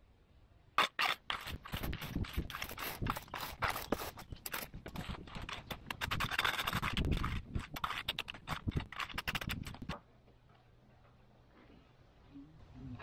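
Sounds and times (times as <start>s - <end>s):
rake scraping through sawdust: 0.8s - 9.9s.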